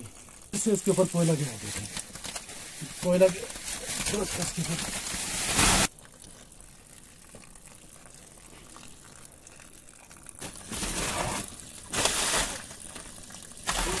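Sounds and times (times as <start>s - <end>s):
charcoal pouring into pit: 0.5s - 5.9s, 10.4s - 14.0s.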